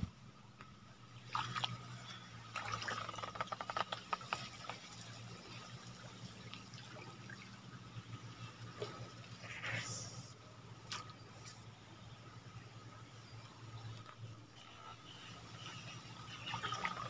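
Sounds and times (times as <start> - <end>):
faint steady hum: 0.0 - 17.0
small splashes and taps: 0.6 - 1.9, 2.5 - 7.6, 10.8 - 11.6
stream water trickling: 0.6 - 17.0.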